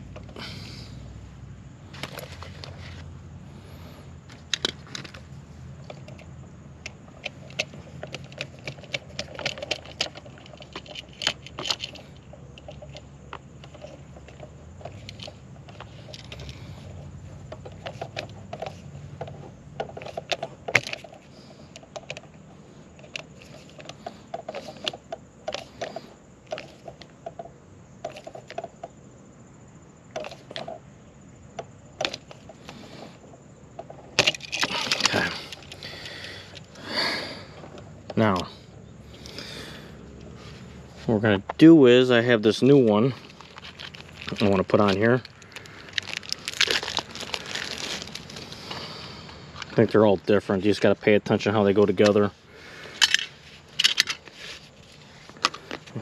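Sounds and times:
metal strap and wires clinking: 4.2 - 28.9, 33.9 - 56.0
screwdriver clicking and scraping: 5.8 - 16.9, 52.9 - 55.9.

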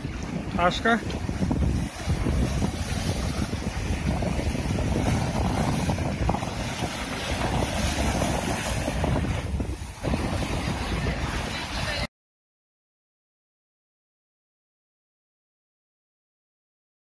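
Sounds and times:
waves splashing over rocks: 0.0 - 12.1
wind buffeting microphone: 0.0 - 12.1.

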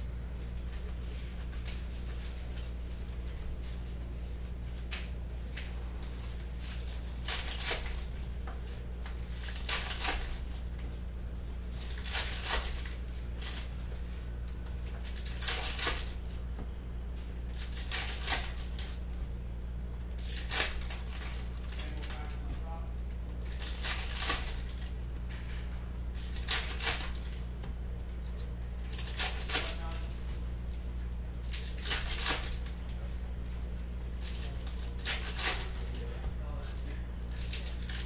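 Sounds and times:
low electrical hum: 0.0 - 38.0
foil wrappers tearing and crinkling: 6.3 - 10.8, 11.5 - 16.4, 17.4 - 19.1, 20.0 - 25.1, 26.0 - 30.8, 31.4 - 38.0.

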